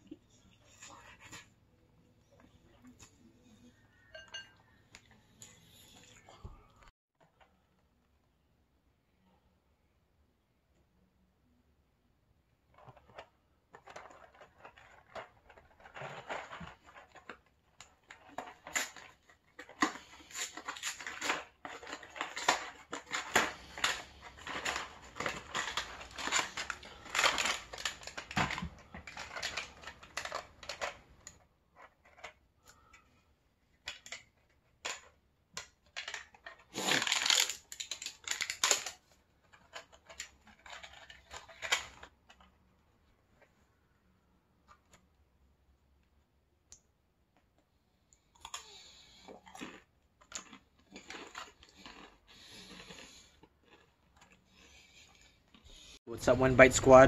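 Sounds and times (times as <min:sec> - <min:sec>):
cardboard box crinkling and tearing: 0:18.4 - 0:30.7, 0:36.8 - 0:39.0.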